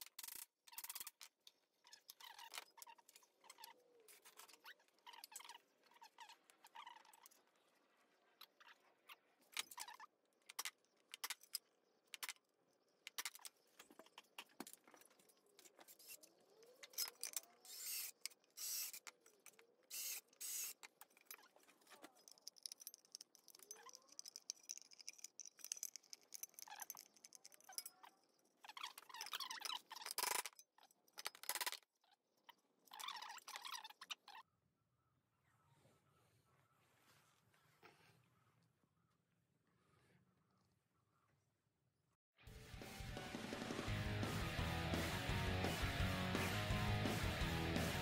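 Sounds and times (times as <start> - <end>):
metal parts clicking and scraping: 0.0 - 7.5, 8.4 - 34.4.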